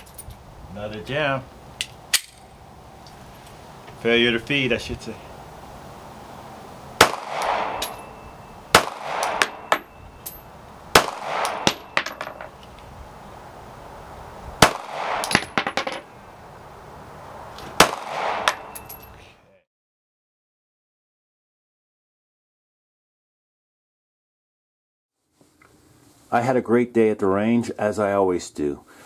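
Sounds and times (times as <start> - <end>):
metallic clinks: 0.0 - 0.4, 7.6 - 8.6, 9.2 - 10.6, 11.5 - 12.7, 18.4 - 19.3
pistol shots with echo: 7.0 - 10.0, 10.9 - 12.4, 14.6 - 15.8, 17.8 - 18.8.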